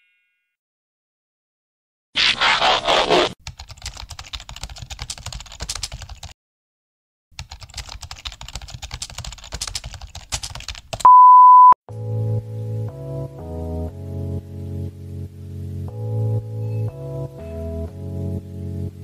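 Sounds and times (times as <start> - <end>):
keyboard typing clicks: 7.4 - 11.1
censor bleep: 11.1 - 11.8.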